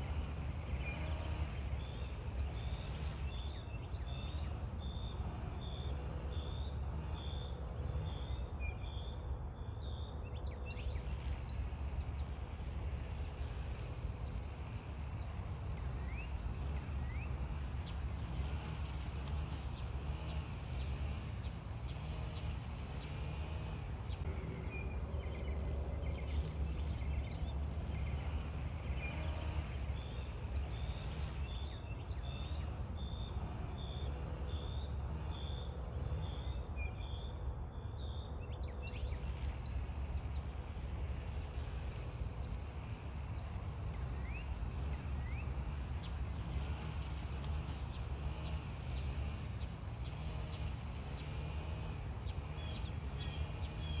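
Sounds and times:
small birds chirping: 38.0s - 54.0s.

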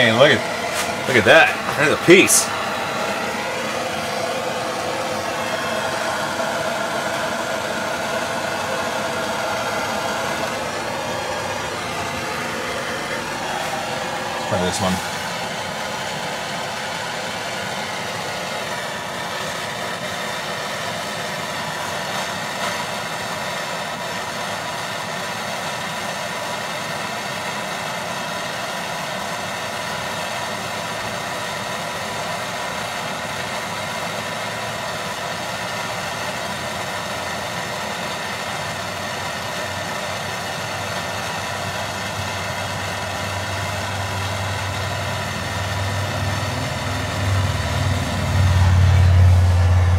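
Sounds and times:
blow torch hissing: 0.0s - 49.9s
low hum: 42.3s - 49.9s.

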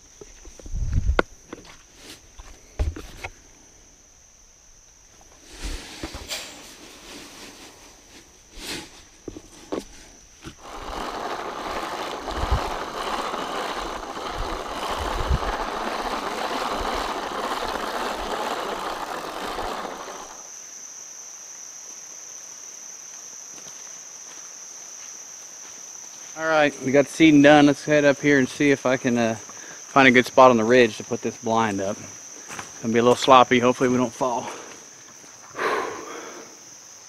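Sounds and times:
high insect drone: 0.0s - 37.0s
rough rustling: 5.2s - 20.5s.

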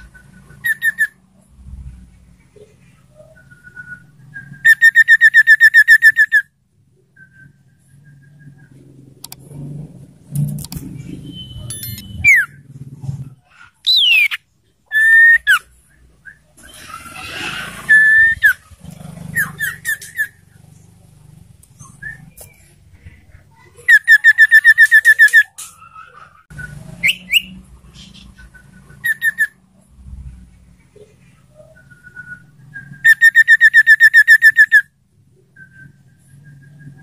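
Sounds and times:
bird singing whistled notes: 0.0s - 1.2s, 3.1s - 8.8s, 11.1s - 12.6s, 13.8s - 17.0s, 17.8s - 18.6s, 21.8s - 22.8s, 23.8s - 25.6s, 26.5s - 27.6s, 28.4s - 29.6s, 31.5s - 37.0s
fast bird trill: 0.4s - 1.2s, 4.6s - 6.5s, 11.3s - 12.6s, 13.8s - 15.7s, 16.6s - 20.5s, 23.8s - 27.6s, 28.6s - 29.6s, 33.0s - 34.9s.

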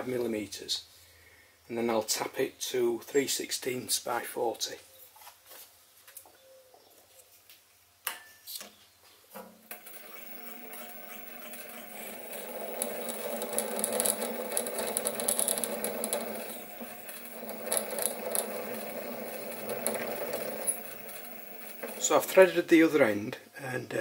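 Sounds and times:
lathe clicks: 9.7s - 22.3s
lathe motor hum: 9.7s - 22.5s
drill bit cutting metal: 9.8s - 22.4s.

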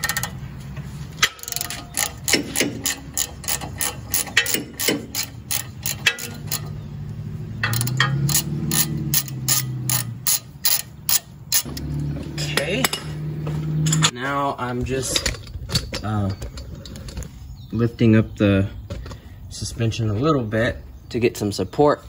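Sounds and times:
socket ratchet clicking: 1.2s - 6.8s, 7.6s - 11.7s.

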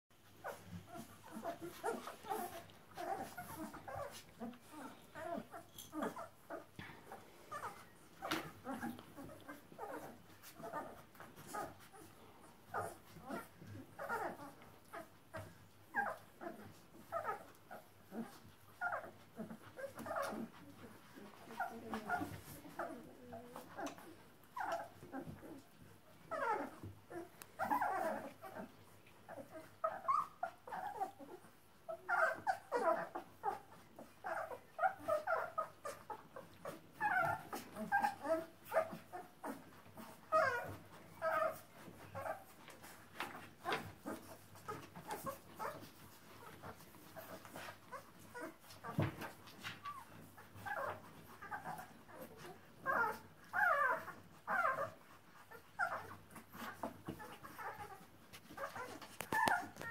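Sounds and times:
puppies whimpering and squeaking: 0.2s - 59.9s.

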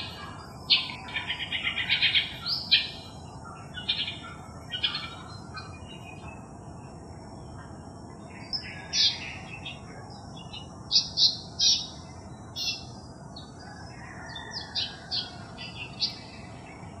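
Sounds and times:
bird singing scratchy notes: 0.0s - 13.2s.

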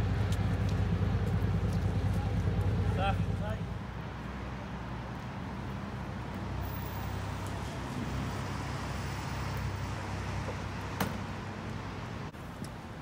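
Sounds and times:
boat engine humming: 0.0s - 6.0s.

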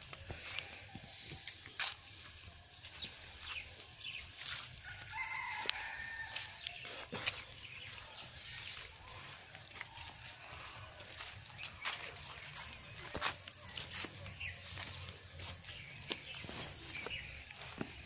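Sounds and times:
faint outdoor background: 0.0s - 18.0s
rooster crowing: 4.8s - 6.9s.

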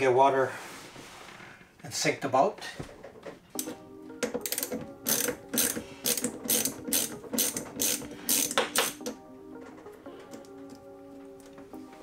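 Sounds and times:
ratchet wrench clicking: 4.4s - 9.1s.

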